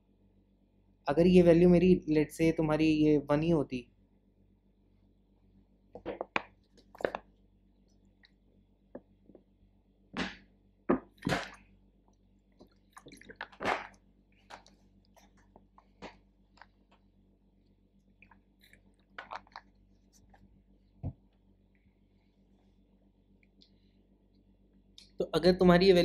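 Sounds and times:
crinkling: 6.0 - 7.3, 11.2 - 17.1, 18.1 - 20.5
person eating: 12.6 - 16.0, 18.2 - 20.4.

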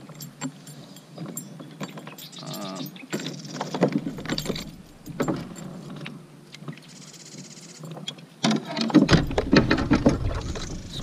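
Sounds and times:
fishing tackle knocks and rattles: 3.1 - 6.2, 8.4 - 11.0.

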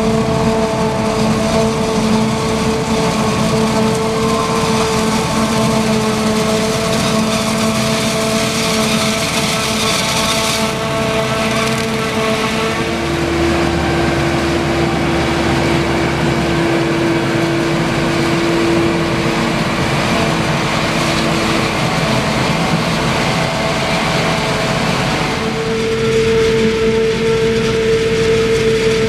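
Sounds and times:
forage harvester chopping maize: 0.0 - 25.5
steady machine tone: 8.1 - 29.0.

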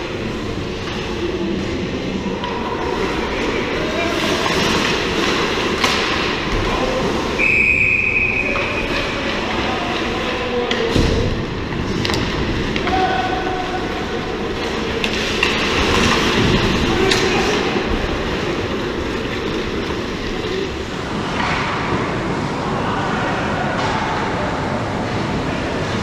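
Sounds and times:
skates scraping ice: 0.1 - 7.4, 11.8 - 22.5
hockey sticks and puck clacking: 0.1 - 22.5.

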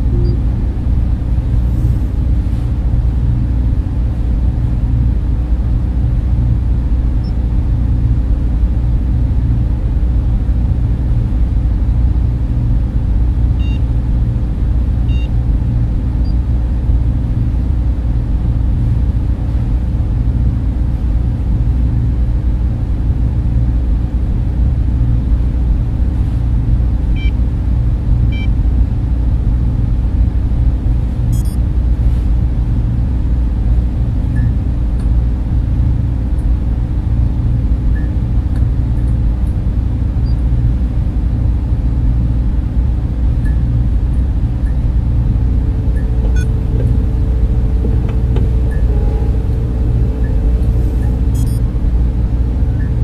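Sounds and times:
faint electronic beeps: 0.0 - 0.6, 31.3 - 31.6, 44.6 - 53.0
low rumbling drone: 0.0 - 22.0, 40.9 - 53.0.

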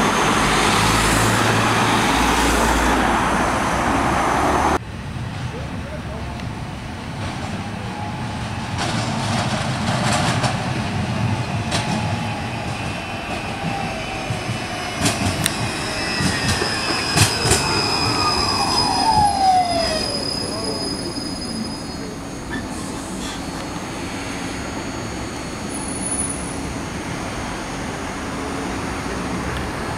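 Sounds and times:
tram passing: 0.0 - 29.9
wheel squeal: 11.7 - 26.8.

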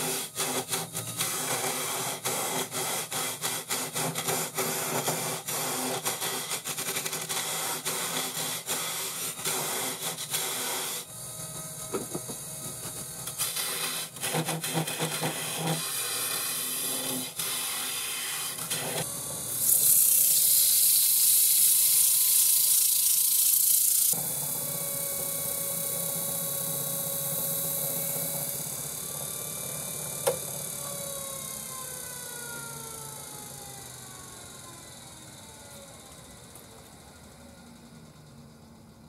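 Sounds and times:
turning tool scraping wood: 0.0 - 11.0, 11.8 - 19.0
sandpaper hissing on spinning wood: 0.0 - 11.1, 13.4 - 24.2.

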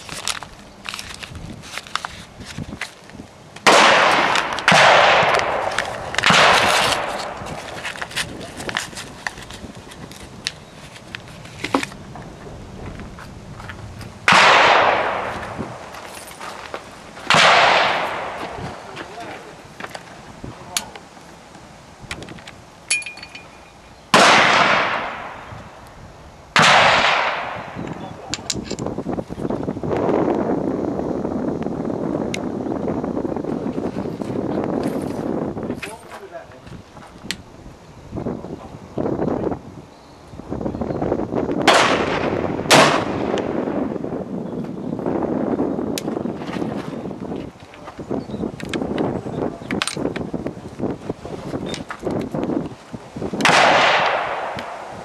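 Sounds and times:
paper packet tearing: 0.0 - 3.1, 5.7 - 11.7
rifle shots with echo: 3.6 - 7.4, 14.3 - 15.5, 17.3 - 18.6, 24.1 - 25.5, 26.6 - 27.8, 41.7 - 43.3, 53.4 - 54.9.

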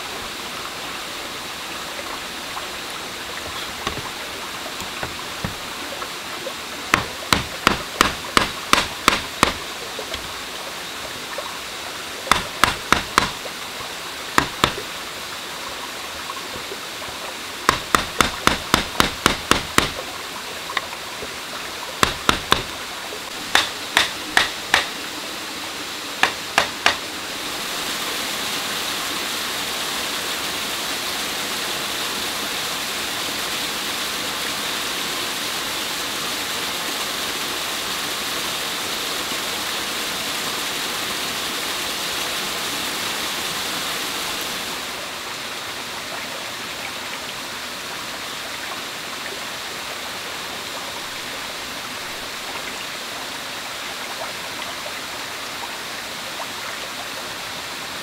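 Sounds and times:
stream water rushing: 0.0 - 58.0
knife chopping wood: 3.8 - 4.1, 4.8 - 5.6, 6.9 - 10.3, 12.3 - 13.4, 14.4 - 14.8, 17.7 - 20.0, 22.0 - 22.7, 23.5 - 25.0, 26.2 - 27.0.

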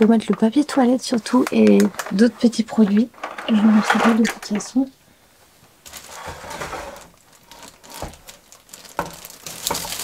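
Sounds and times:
soft rustling: 5.4 - 10.0.

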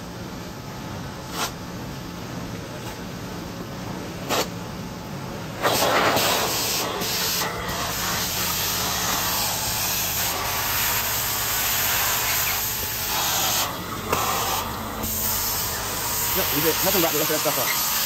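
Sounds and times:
hiss of spraying water and suction: 5.6 - 18.0
vacuum running: 5.6 - 18.0.

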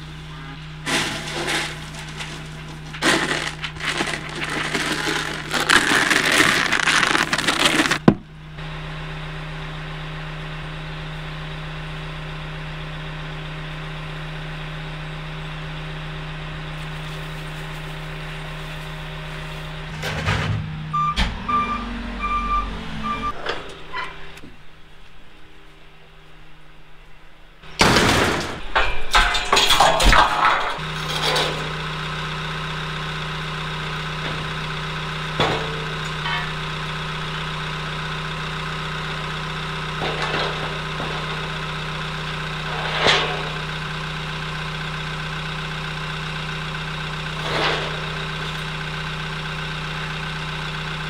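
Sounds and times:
diesel engine idling: 0.0 - 27.8, 30.6 - 51.0
pellets rattling into metal trough: 0.9 - 8.2
short beeps: 20.9 - 23.4.

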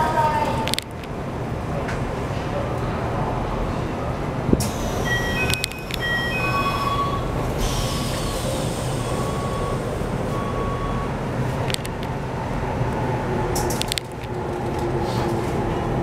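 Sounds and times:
train interior hum: 0.0 - 16.0
train doors shutting: 3.8 - 16.0
beeping chime: 5.0 - 7.4.

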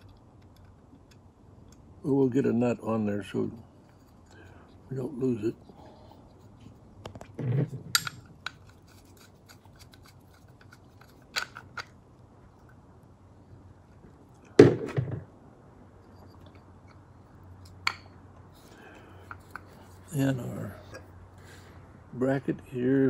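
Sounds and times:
clicks and knocks of metal parts: 7.0 - 12.0, 19.2 - 19.9.

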